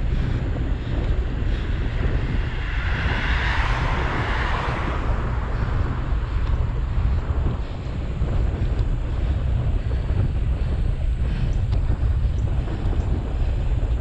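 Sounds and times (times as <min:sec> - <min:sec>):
wind buffeting microphone: 0:00.0 - 0:14.0
vehicle tyre hiss passing: 0:02.4 - 0:06.9.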